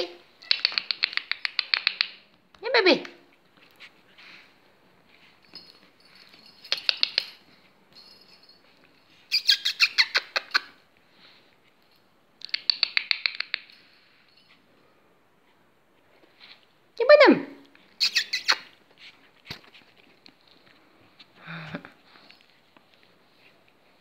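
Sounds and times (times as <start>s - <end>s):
dog claws clicking on tiles: 0.4s - 2.4s, 6.6s - 7.5s, 12.4s - 13.8s.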